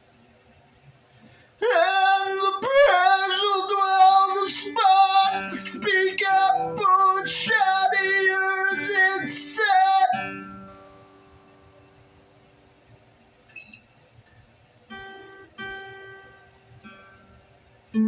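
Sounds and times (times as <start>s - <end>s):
acoustic guitar: 1.2s - 12.8s, 13.5s - 18.0s
high singing voice: 1.6s - 10.7s.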